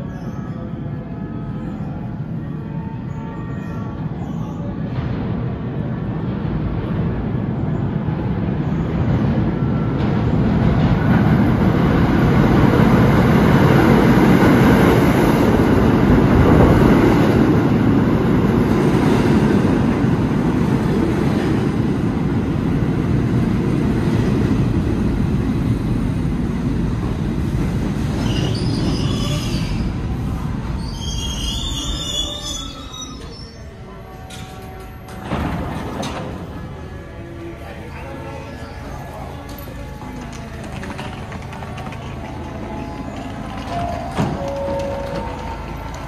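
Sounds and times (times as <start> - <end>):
subway train wheels rumbling: 0.0 - 46.0
train brakes squealing: 28.1 - 30.1, 30.7 - 37.2.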